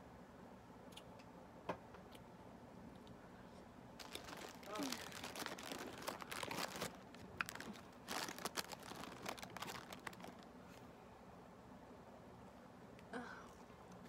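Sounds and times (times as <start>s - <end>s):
plastic bag crinkling: 4.0s - 10.6s.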